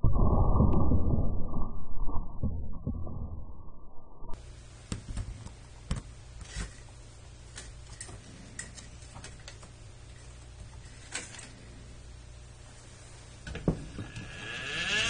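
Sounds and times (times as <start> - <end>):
muffled low rumble: 0.0 - 4.4
faint steady hum: 3.3 - 15.0.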